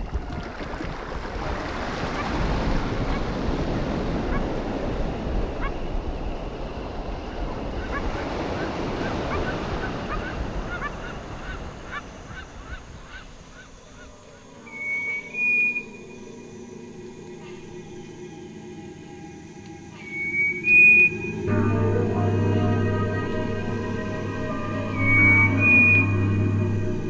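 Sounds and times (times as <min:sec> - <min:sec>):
ocean surf on rocky beach: 0:00.0 - 0:15.1
wind rumbling on microphone: 0:00.0 - 0:18.2.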